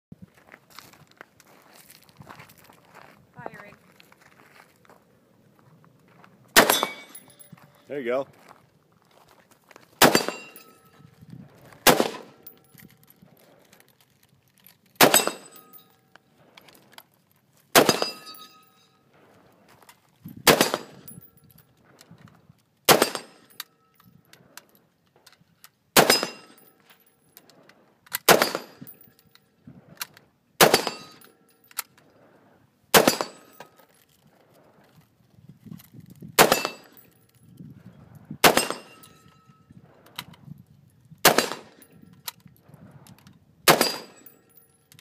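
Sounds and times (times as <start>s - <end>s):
rifle shots with echo: 6.6s - 7.2s, 10.0s - 10.8s, 11.8s - 12.5s, 15.0s - 15.7s, 17.7s - 18.4s, 20.4s - 21.1s, 22.9s - 23.5s, 26.0s - 26.6s, 28.3s - 28.9s, 30.6s - 31.2s, 32.9s - 33.6s, 36.4s - 37.0s, 38.4s - 39.1s, 41.2s - 41.8s, 43.7s - 44.3s.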